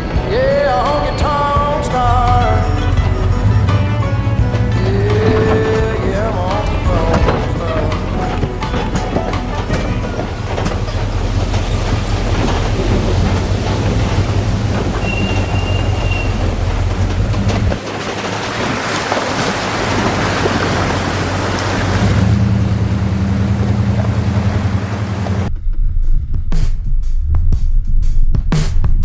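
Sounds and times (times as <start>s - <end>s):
clatter over rough dirt track: 0.0s - 25.5s
water splashing and rushing: 0.0s - 25.5s
vehicle engine running: 0.0s - 26.6s.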